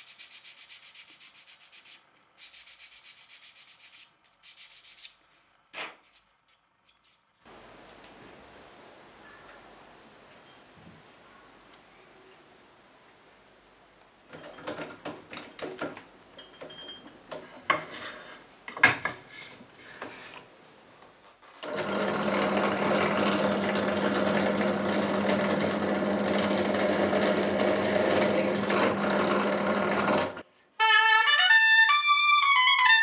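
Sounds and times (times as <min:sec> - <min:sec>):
drill press running hum: 0:21.6 - 0:30.4.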